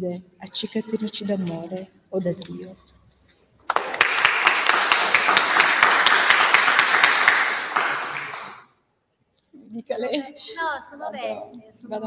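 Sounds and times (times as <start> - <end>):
audience applauding: 3.6 - 8.6.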